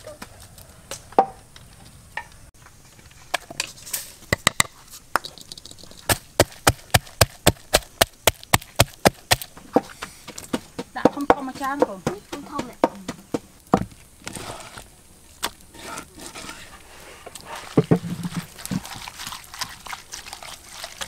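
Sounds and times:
pestle pounding in a mortar: 6.1s - 9.5s.

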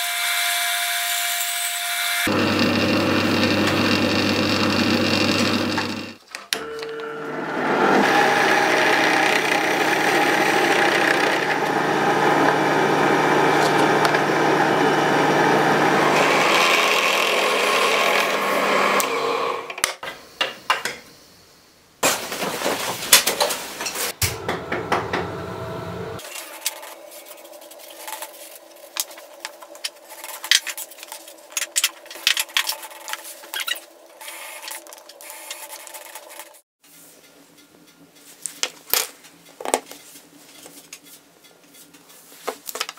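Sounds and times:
drill press boring into wood: 2.2s - 19.7s.

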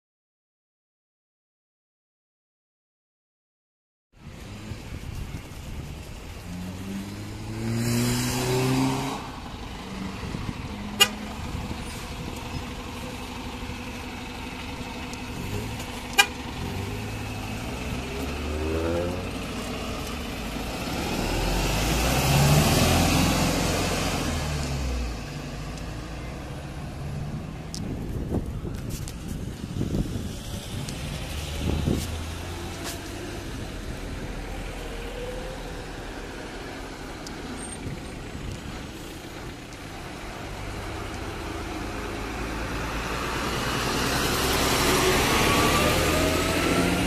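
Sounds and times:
cars pulling away: 4.2s - 47.0s
fire engine rumbling past: 4.2s - 47.0s
short horn toots: 11.0s - 11.3s.

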